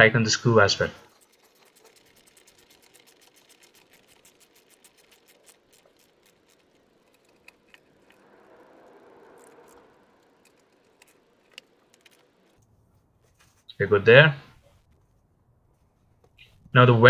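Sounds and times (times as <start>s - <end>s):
socket ratchet clicking: 1.1s - 12.6s.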